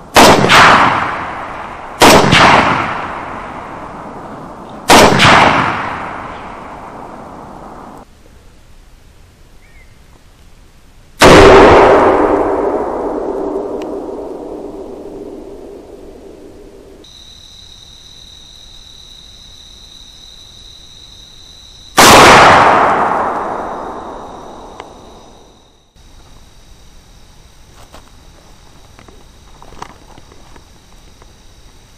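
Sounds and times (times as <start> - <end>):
rifle shots echoing: 0.1 - 8.0, 11.2 - 17.0, 22.0 - 25.4.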